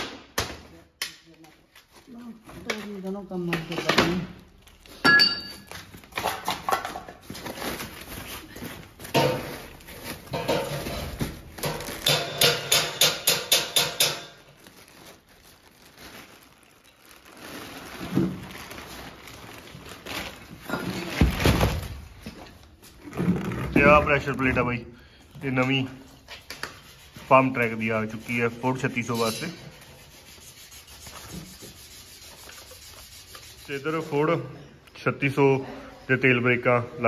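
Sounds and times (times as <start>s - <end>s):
packing rustling: 4.4s - 12.2s, 14.4s - 24.6s
crackles: 14.5s - 21.1s.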